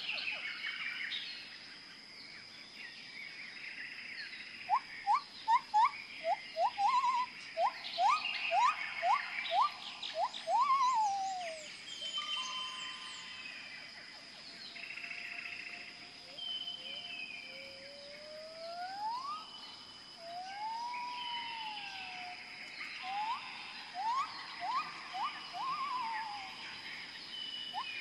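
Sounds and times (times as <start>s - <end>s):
birds whistling: 4.7s - 13.5s, 18.8s - 28.0s
high-pitched insect drone: 4.7s - 14.0s, 14.8s - 28.0s.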